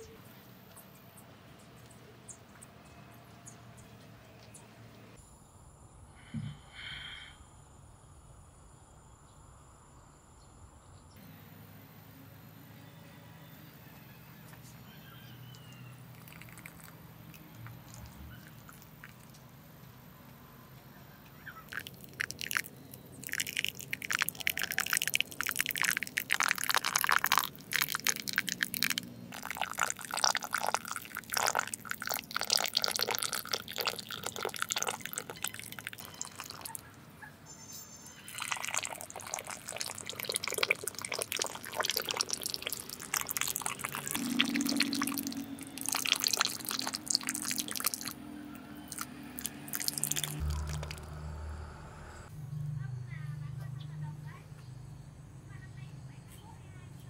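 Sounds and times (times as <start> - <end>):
wet cement splashing and dripping: 21.7 - 36.8, 38.4 - 48.1.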